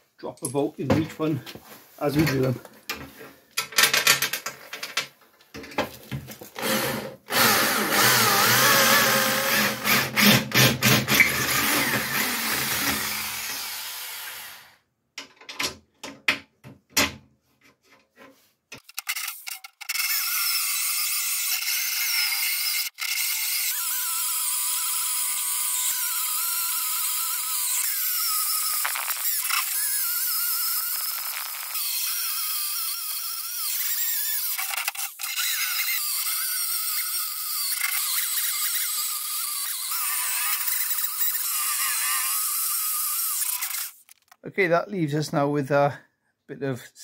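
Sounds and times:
electric drill boring through steel: 0:06.6 - 0:14.8, 0:18.8 - 0:44.2.

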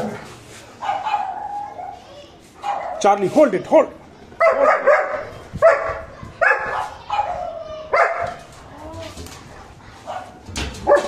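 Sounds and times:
dogs barking: 0:00.8 - 0:02.0, 0:02.6 - 0:03.1, 0:04.4 - 0:08.5, 0:10.0 - 0:11.0.

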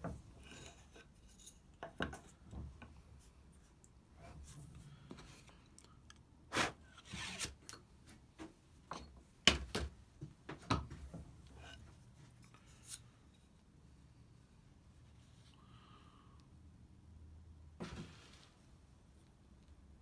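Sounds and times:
wood scraping rub: 0:06.6 - 0:07.6.

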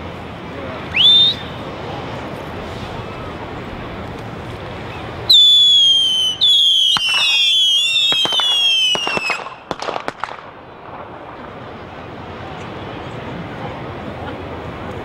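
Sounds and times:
whistling fireworks: 0:00.8 - 0:01.7, 0:04.7 - 0:13.4
firework cracks: 0:04.0 - 0:12.5.

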